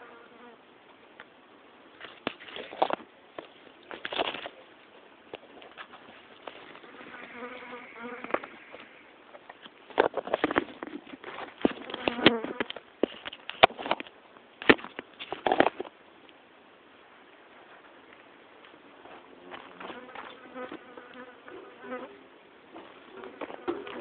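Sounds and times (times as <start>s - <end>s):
flying insect buzzing: 6.8s - 9.0s.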